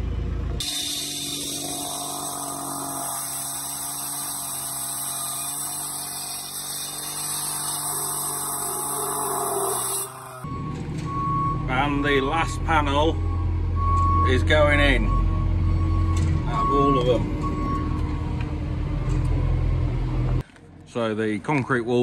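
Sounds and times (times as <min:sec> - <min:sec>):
disc cutter cutting concrete: 0:00.6 - 0:10.5.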